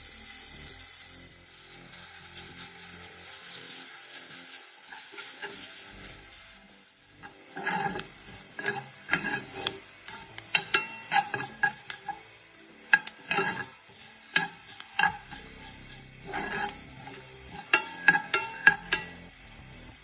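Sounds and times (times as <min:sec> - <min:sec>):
spatula scraping metal pan: 0:01.5 - 0:20.0.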